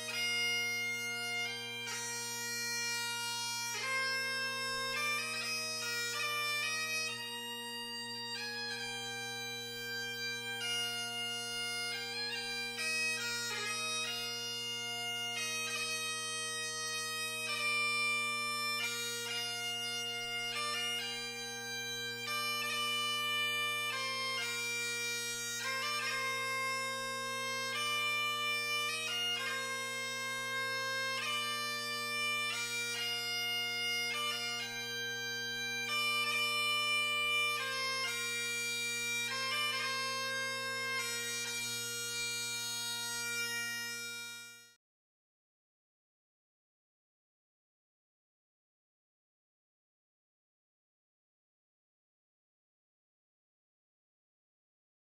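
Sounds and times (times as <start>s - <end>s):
bagpipe melody over drones: 0.0s - 44.8s.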